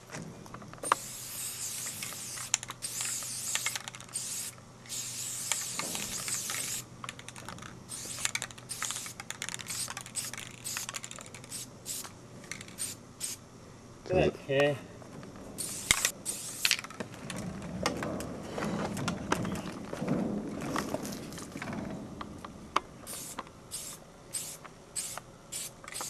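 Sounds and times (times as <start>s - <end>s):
spray paint can hissing: 0.8s - 6.9s, 7.9s - 13.4s, 15.6s - 16.8s, 23.1s - 26.0s.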